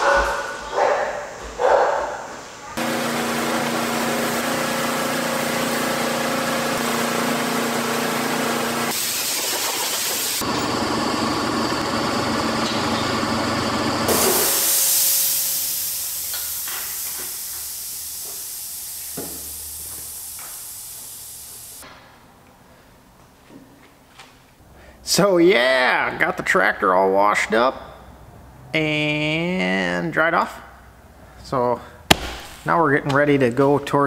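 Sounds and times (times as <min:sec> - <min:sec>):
water jet spraying: 0:02.8 - 0:10.6
pressure washer motor humming: 0:02.8 - 0:17.5.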